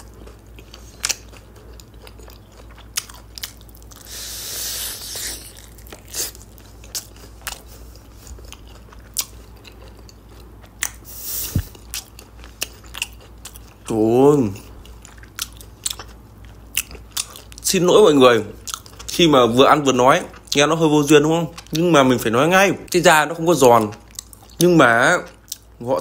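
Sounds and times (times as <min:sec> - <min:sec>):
wet chewing: 0:00.0 - 0:13.9, 0:14.8 - 0:17.7, 0:23.7 - 0:25.8
hissy noise: 0:04.1 - 0:05.5.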